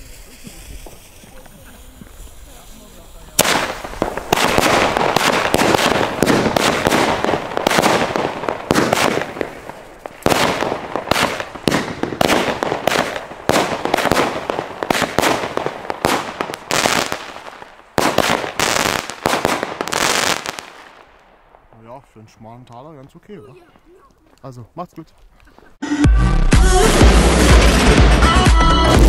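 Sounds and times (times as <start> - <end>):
fireworks pops and bangs: 0.0 - 21.8.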